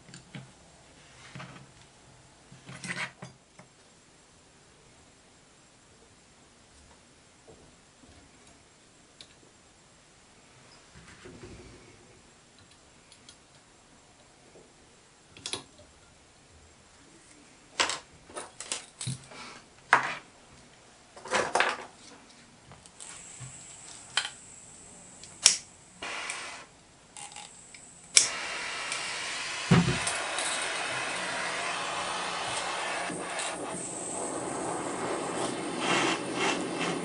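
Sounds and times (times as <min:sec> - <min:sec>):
gas torch lighting click: 0:23.0 - 0:24.5, 0:25.2 - 0:37.0
gas torch flame rushing: 0:23.0 - 0:37.0.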